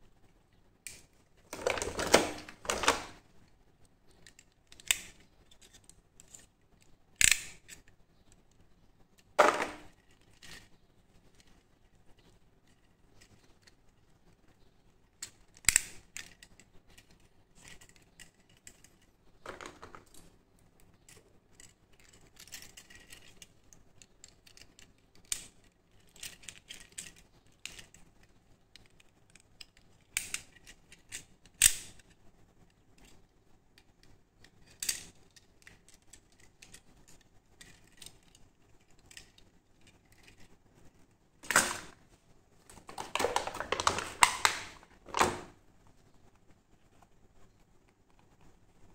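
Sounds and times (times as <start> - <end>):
toy handcuff ratchet clicks: 7.2 - 7.9.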